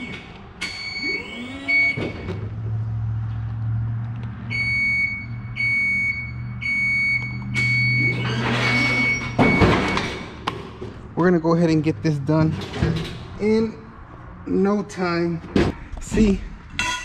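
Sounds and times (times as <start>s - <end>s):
motion alarm beeps: 0.6s - 2.3s, 4.5s - 10.2s.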